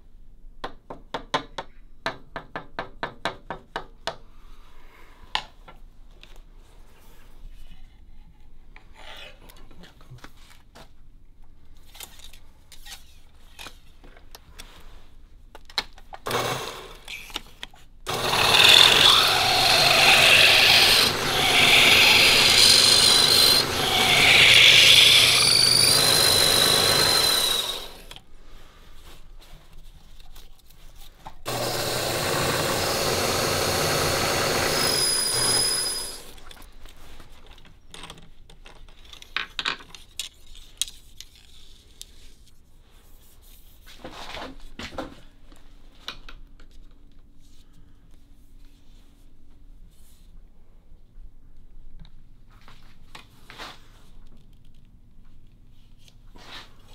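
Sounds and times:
lathe rasping whir: 16.3s - 17.1s, 18.1s - 28.2s, 31.5s - 36.4s.

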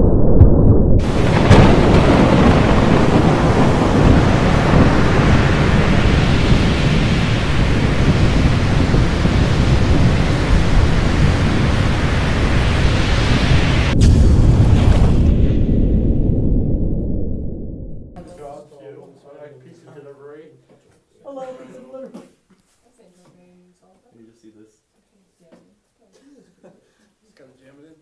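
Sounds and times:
deep rumble of thunder: 0.0s - 18.2s
sharp thunder crack: 0.0s - 18.2s
storm noise rushing: 0.0s - 18.2s.

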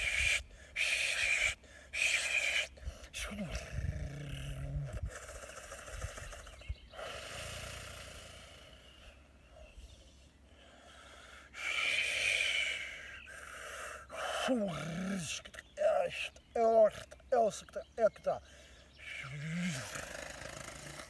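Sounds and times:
man's low vocal tone: 2.8s - 5.2s, 19.2s - 21.0s.

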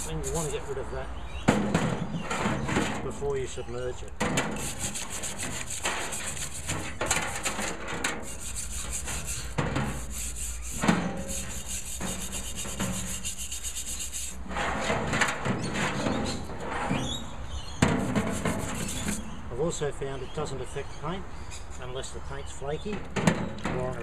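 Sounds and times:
wire brush scrubbing metal: 0.0s - 0.8s, 4.2s - 17.1s, 17.8s - 19.3s.

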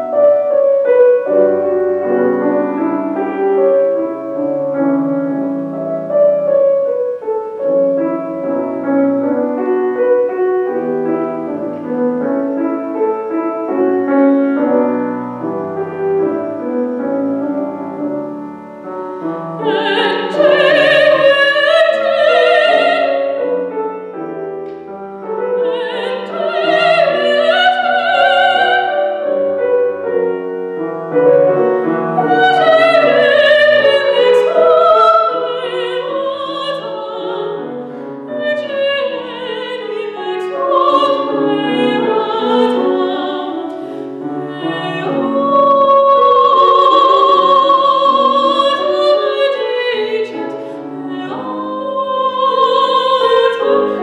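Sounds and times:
grand piano accompaniment: 0.0s - 54.0s
soprano singing with vibrato: 17.9s - 24.2s, 25.4s - 30.6s, 31.5s - 54.0s.

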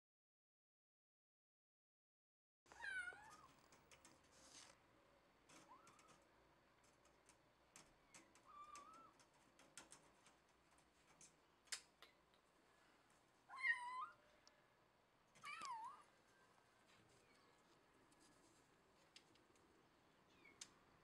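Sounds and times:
cat meowing: 2.7s - 3.5s, 13.5s - 14.2s, 15.4s - 16.1s.

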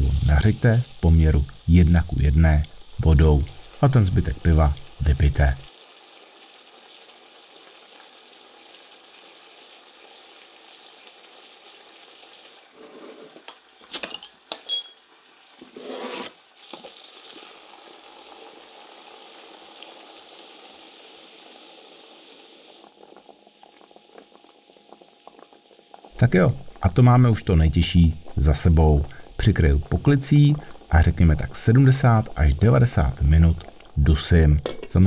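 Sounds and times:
meat sizzling in frying pan: 0.0s - 12.7s
bottle cap metallic clinks: 13.9s - 15.0s.

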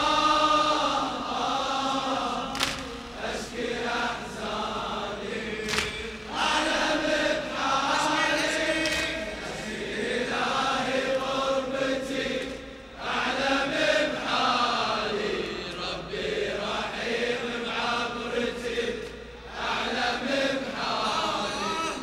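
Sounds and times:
crowd of men chanting: 0.0s - 22.0s
man chanting into a microphone: 7.9s - 9.3s, 21.1s - 22.0s.

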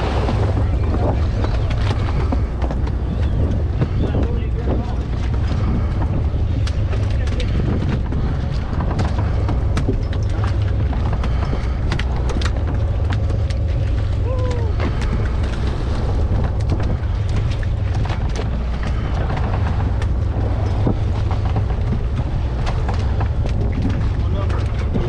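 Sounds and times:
boat engine rumble: 0.0s - 25.0s.

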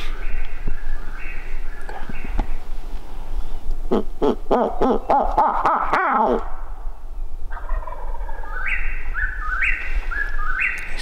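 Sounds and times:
songbird singing: 0.0s - 11.0s
turkey gobbling: 3.9s - 6.6s, 7.5s - 10.8s.

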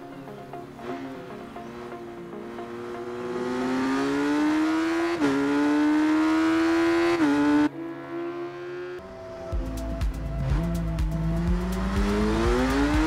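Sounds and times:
motorcycle engine accelerating hard: 2.5s - 9.0s, 10.4s - 13.0s.

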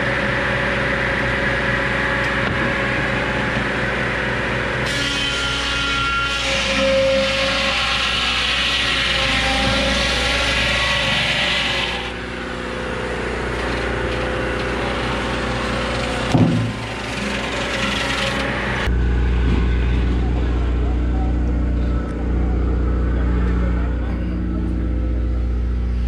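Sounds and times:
engine running: 0.0s - 5.0s, 9.0s - 26.0s
sawmill blade cutting log: 1.8s - 20.9s.

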